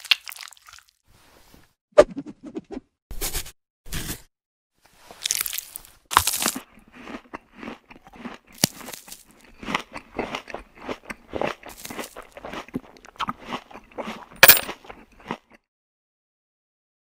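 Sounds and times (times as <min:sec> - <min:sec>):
crusty bread being torn: 0:05.2 - 0:06.7, 0:08.2 - 0:09.5.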